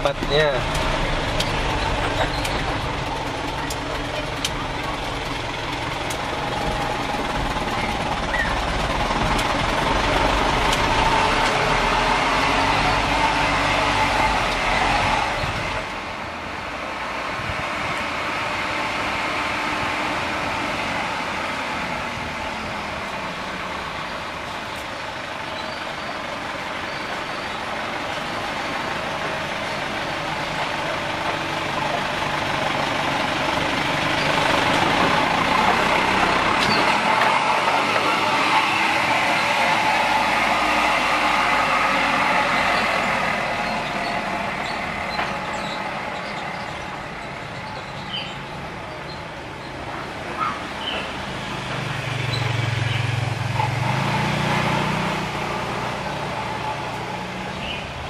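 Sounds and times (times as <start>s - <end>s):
truck engine driving past: 0.0s - 58.0s.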